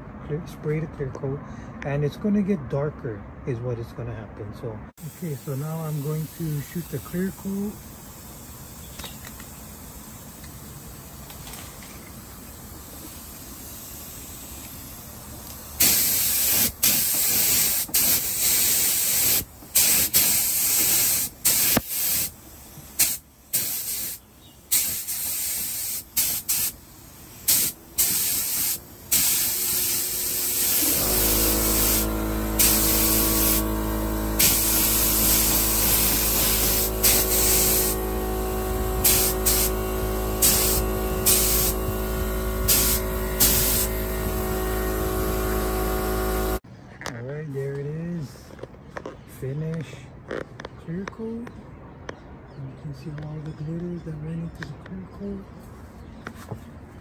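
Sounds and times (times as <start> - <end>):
spray gun hissing: 5.0 - 11.3, 12.1 - 46.6
low machine hum: 30.0 - 46.6.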